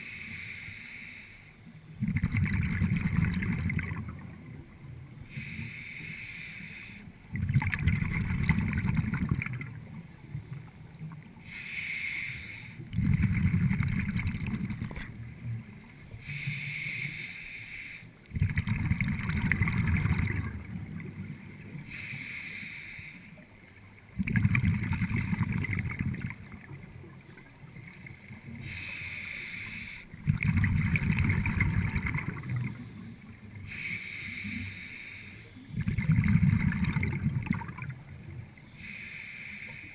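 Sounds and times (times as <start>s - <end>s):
regulator inhale hissing: 0.0s - 1.7s, 5.2s - 7.2s, 11.4s - 12.9s, 16.2s - 18.3s, 21.8s - 23.5s, 28.5s - 30.2s, 33.0s - 35.7s, 38.7s - 39.9s
exhaled bubbles rumbling: 2.0s - 5.0s, 7.3s - 11.3s, 12.9s - 15.9s, 18.3s - 21.6s, 24.1s - 28.7s, 30.2s - 33.5s, 35.7s - 38.6s.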